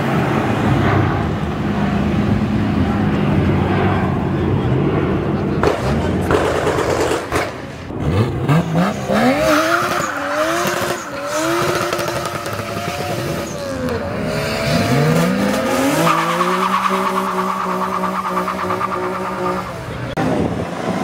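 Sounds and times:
car engine revving hard: 0:08.0 - 0:21.0.

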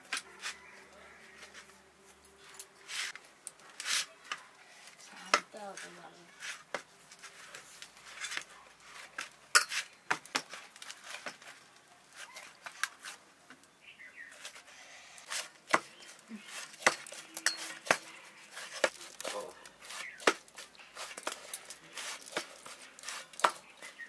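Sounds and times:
hands kneading dough: 0:14.3 - 0:24.0.

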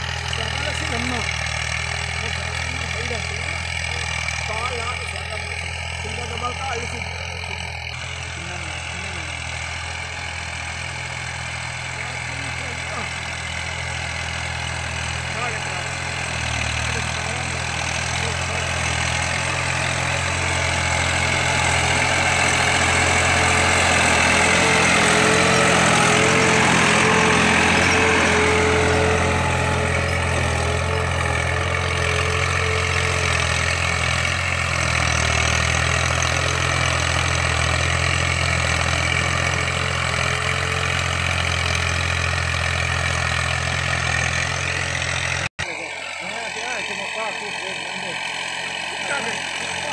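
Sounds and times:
tractor diesel engine running: 0:00.0 - 0:49.9.

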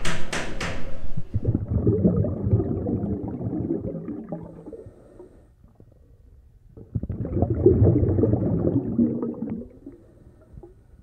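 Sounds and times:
hammer blows on wooden door: 0:00.0 - 0:01.0.

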